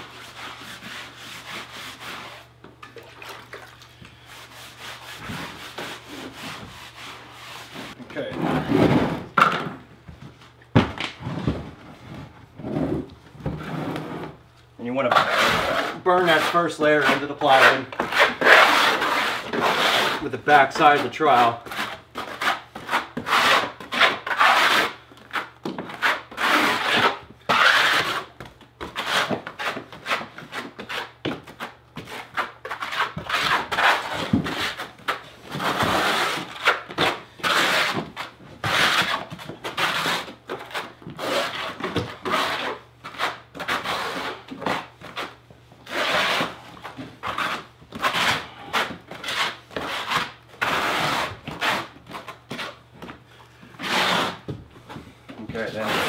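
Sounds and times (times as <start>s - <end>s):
trowel scraping mortar on wood: 15.0s - 46.6s, 53.8s - 54.5s.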